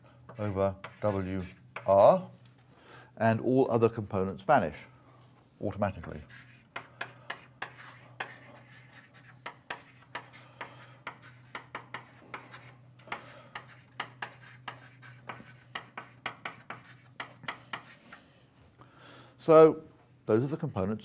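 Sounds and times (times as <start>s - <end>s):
writing taps and scratches: 0.3s - 1.9s, 6.0s - 18.2s.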